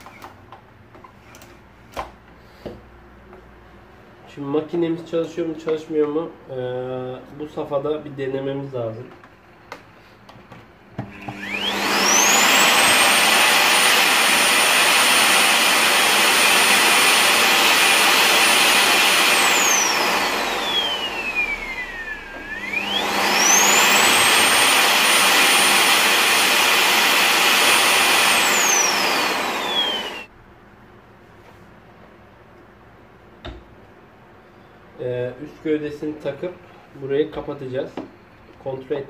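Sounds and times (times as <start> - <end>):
vacuum cleaner motor whining: 11.0 - 30.3.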